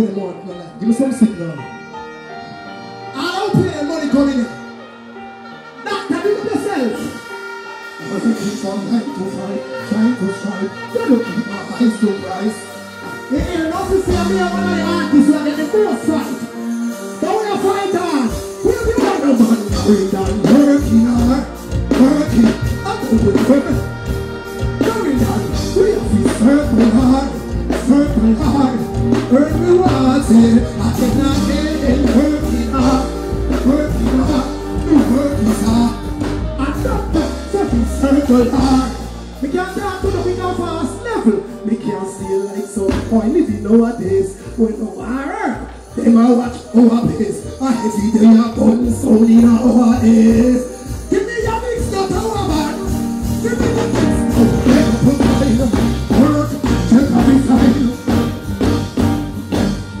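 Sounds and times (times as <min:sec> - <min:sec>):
person singing: 0:07.1 - 0:44.6, 0:46.0 - 1:00.0
heavy bass line: 0:13.4 - 0:16.3, 0:17.7 - 0:41.8, 0:48.6 - 1:00.0.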